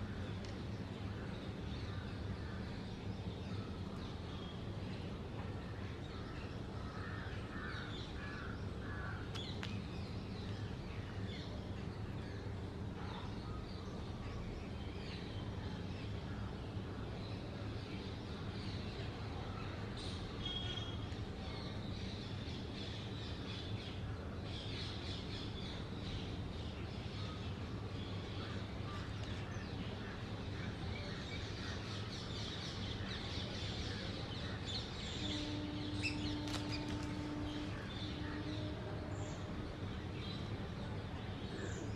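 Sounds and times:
steady low hum: 0:00.0 - 0:41.9
birds calling: 0:34.4 - 0:40.5.

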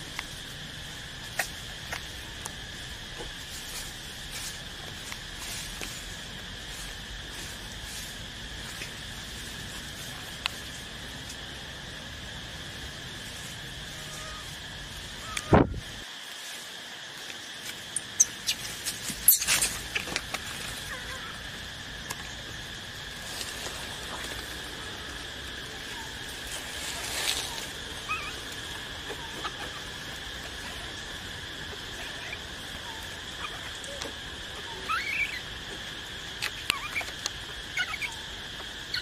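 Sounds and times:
high insect drone: 0:00.0 - 0:39.0
rustles and clicks: 0:13.1 - 0:34.2.

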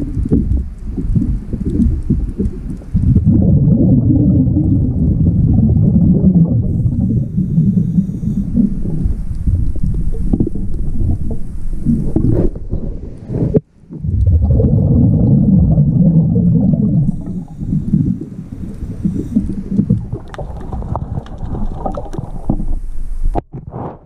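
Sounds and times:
bubbles gurgling: 0:00.0 - 0:23.4
diver's regulator breathing: 0:06.7 - 0:13.6, 0:17.0 - 0:24.0.

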